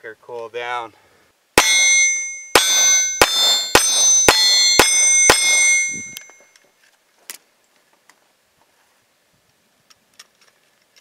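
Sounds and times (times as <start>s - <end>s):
steel target clanging: 1.6s - 6.5s.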